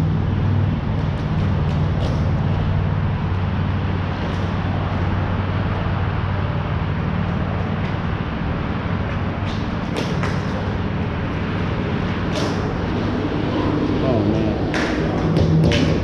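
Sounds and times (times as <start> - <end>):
steady low hum: 0.0 - 16.0
distant stick and ball clicks: 9.1 - 13.1, 14.3 - 16.0.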